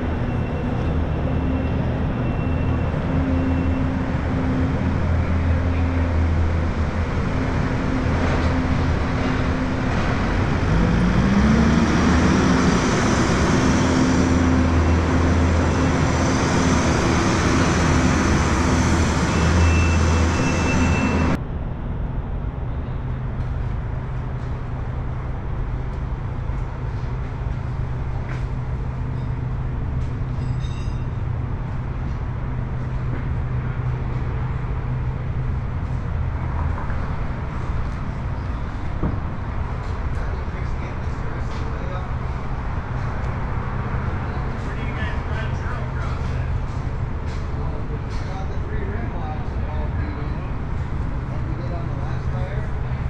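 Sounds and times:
low drone: 0:00.0 - 0:26.4
road noise rushing: 0:00.0 - 0:53.0.

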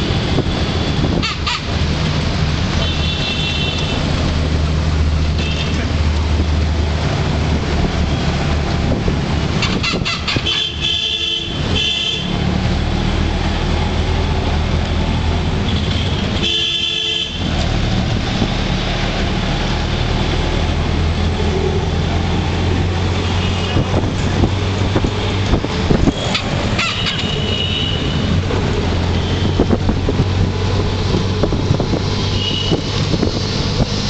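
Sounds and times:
auto-rickshaw engine droning: 0:00.0 - 0:34.0
vehicle horns beeping: 0:00.6 - 0:01.8, 0:02.8 - 0:04.1, 0:05.4 - 0:05.8, 0:09.6 - 0:12.4, 0:15.9 - 0:17.5, 0:23.2 - 0:24.1, 0:26.0 - 0:28.4, 0:29.1 - 0:29.8, 0:32.3 - 0:33.0.

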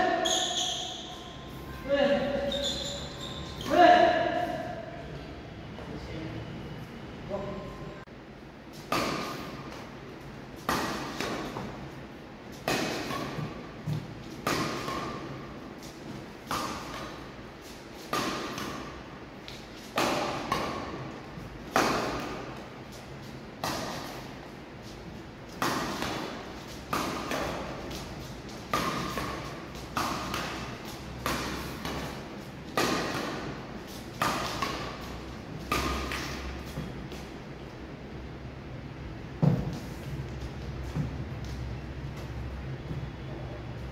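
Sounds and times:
badminton racket hitting shuttlecock: 0:08.7 - 0:09.8, 0:10.6 - 0:11.9, 0:12.5 - 0:22.6, 0:23.6 - 0:24.3, 0:25.5 - 0:37.3.

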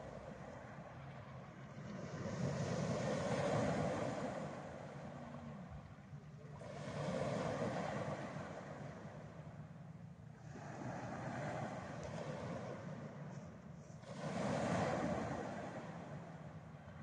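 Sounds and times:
waves washing over pebble beach: 0:01.9 - 0:04.8, 0:06.6 - 0:08.9, 0:10.4 - 0:12.9, 0:14.0 - 0:16.2.

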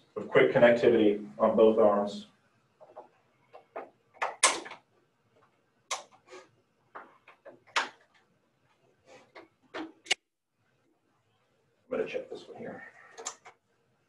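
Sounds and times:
attachments clicking into place: 0:02.8 - 0:06.2, 0:06.9 - 0:08.3.

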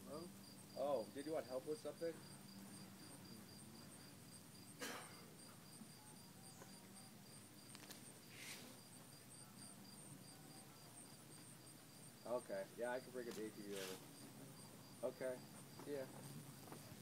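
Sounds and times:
cricket chirping: 0:00.0 - 0:17.0
soft rustles: 0:13.3 - 0:14.0.

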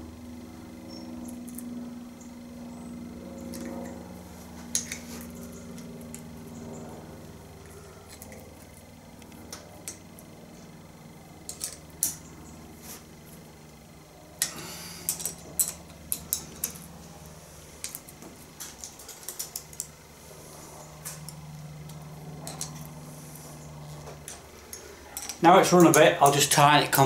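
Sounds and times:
spanner clinking on metal blade: 0:14.4 - 0:16.8.

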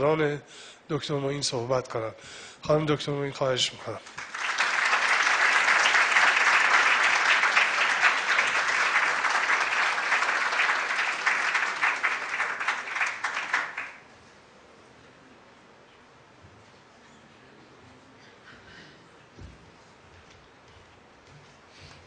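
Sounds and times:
audience applauding: 0:04.0 - 0:14.1.

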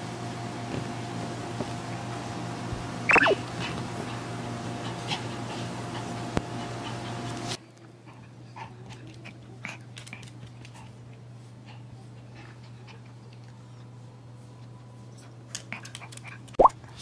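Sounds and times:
dog panting faintly: 0:04.8 - 0:16.5.

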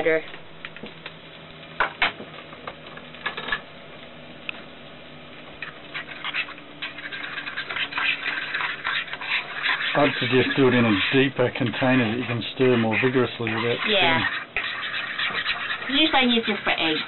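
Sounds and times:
fork whisking in a bowl: 0:05.6 - 0:17.0.

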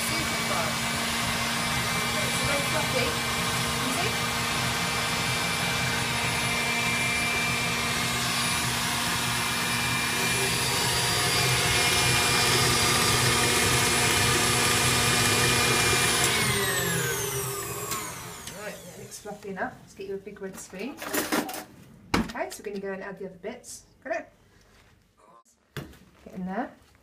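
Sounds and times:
mixer motor spinning down: 0:00.0 - 0:19.2
stand mixer running: 0:00.0 - 0:19.2.

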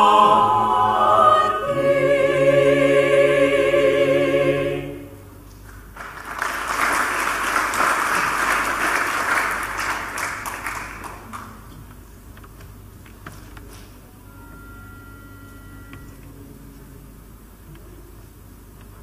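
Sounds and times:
choir singing held chord: 0:00.0 - 0:05.3
audience applauding: 0:05.7 - 0:11.7.

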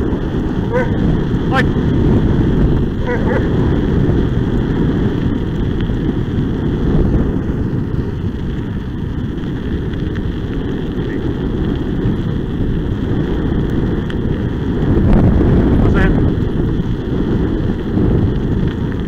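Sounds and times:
wheels rolling on asphalt: 0:00.0 - 0:19.0
wind noise on microphone: 0:00.0 - 0:19.0.

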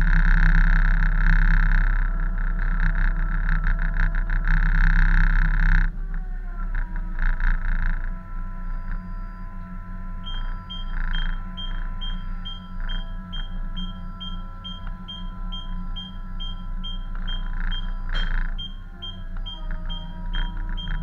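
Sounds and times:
tugboat machinery rumbling: 0:00.0 - 0:21.0
short high electronic beep: 0:10.3 - 0:21.0.

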